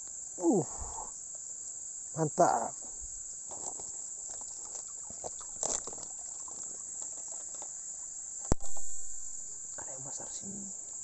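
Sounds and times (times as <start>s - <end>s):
cricket chorus chirring: 0.0s - 11.0s
water splashing and sloshing: 4.4s - 7.7s.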